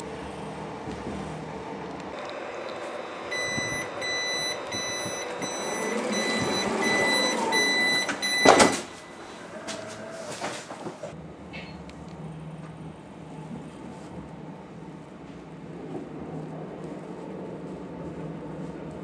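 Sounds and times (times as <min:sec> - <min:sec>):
train running hum: 0:00.0 - 0:08.3, 0:09.1 - 0:19.0
train door warning beeps: 0:03.3 - 0:09.2
sliding door clunk: 0:04.6 - 0:11.7.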